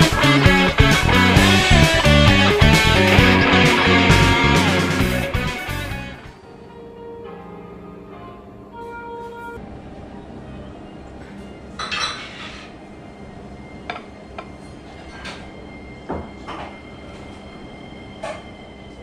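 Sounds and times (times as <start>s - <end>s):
glasses and dishes clinking: 11.8s - 12.5s.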